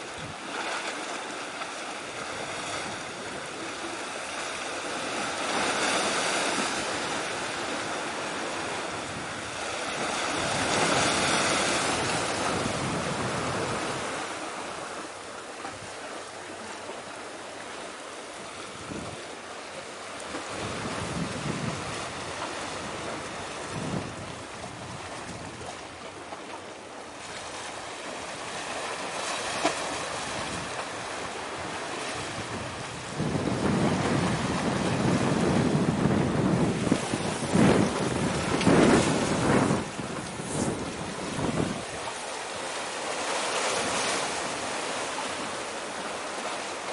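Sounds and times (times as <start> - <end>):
waves washing on shore: 0.0 - 46.9
wind buffeting microphone: 5.0 - 14.3, 18.7 - 19.3, 20.3 - 26.0, 29.6 - 42.8.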